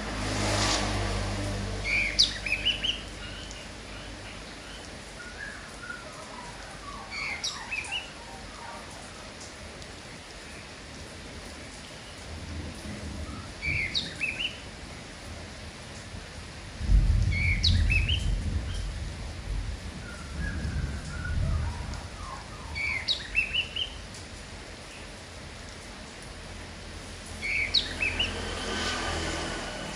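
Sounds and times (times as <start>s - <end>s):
rain hiss: 0.0s - 29.9s
bird singing chirps: 1.9s - 4.1s, 5.2s - 8.8s, 13.6s - 14.6s, 17.3s - 18.3s, 20.1s - 24.0s, 27.4s - 28.4s.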